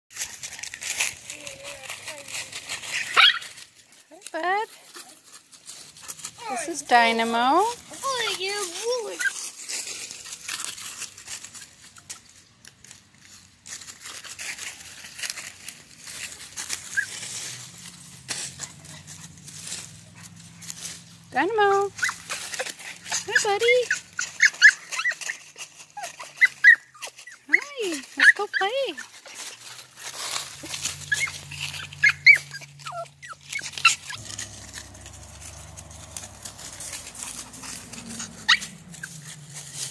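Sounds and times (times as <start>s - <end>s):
leaves crunching underfoot: 0.1s - 39.9s
puppy whimpering yips: 2.8s - 3.5s, 9.0s - 9.4s, 16.8s - 17.2s, 21.9s - 29.1s, 30.6s - 34.2s, 38.1s - 39.9s.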